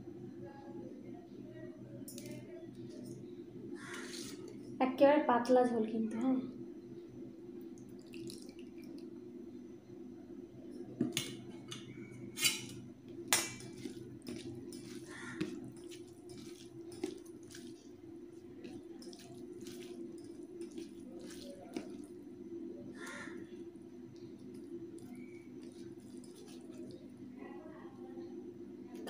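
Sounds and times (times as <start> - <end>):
steady low hum: 0.0 - 29.0
wet squish of mixing by hand: 7.6 - 9.1, 13.1 - 27.4
curry pouring onto rice: 13.6 - 22.2, 24.4 - 27.1.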